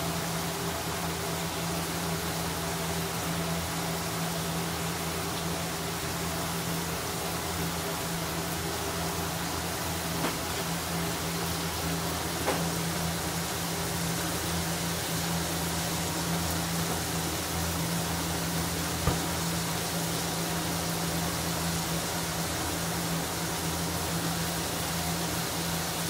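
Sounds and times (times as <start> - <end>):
oil sizzling: 0.0 - 26.0
oil popping: 19.0 - 19.6.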